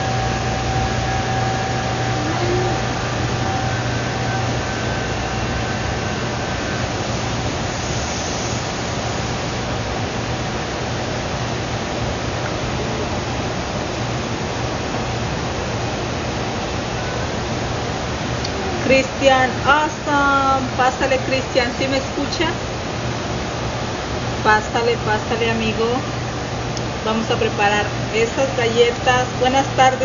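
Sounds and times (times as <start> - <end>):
faint high tones: 0.0 - 7.0
fan rushing and humming: 0.0 - 30.0.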